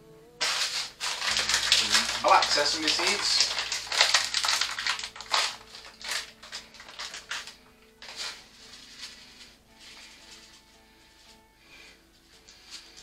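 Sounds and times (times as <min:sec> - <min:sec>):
plastic bag crinkling: 0:00.4 - 0:10.6.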